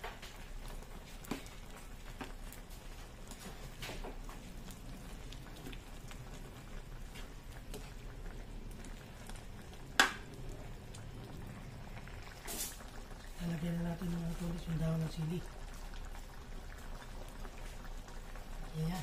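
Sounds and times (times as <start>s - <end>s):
broth simmering and bubbling: 0.0s - 19.0s.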